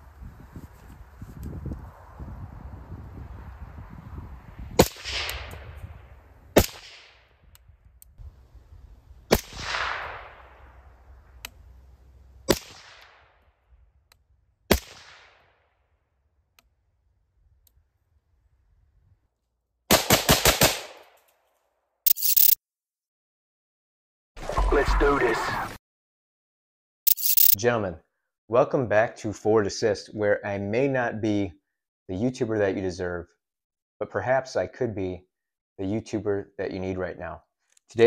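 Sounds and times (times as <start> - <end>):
suppressed rifle shots: 9.3 - 10.4.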